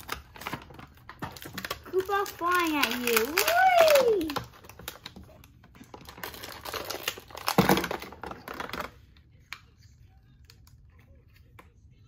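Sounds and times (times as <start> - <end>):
plastic packaging crinkling: 0.0 - 9.0.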